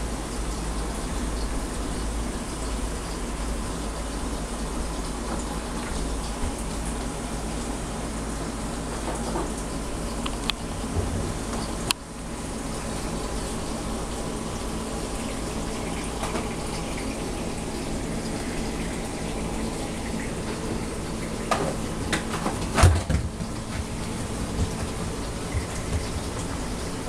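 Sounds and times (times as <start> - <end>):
aquarium water running: 0.0 - 27.0
low pump hum: 0.0 - 27.0.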